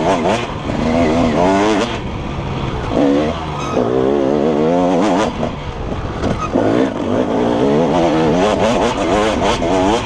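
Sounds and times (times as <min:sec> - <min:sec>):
dirt bike engine revving: 0:00.0 - 0:10.0.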